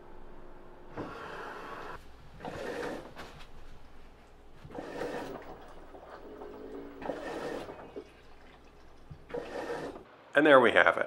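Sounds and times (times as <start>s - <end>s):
water rushing into washing machine: 2.4s - 3.2s, 4.3s - 10.1s.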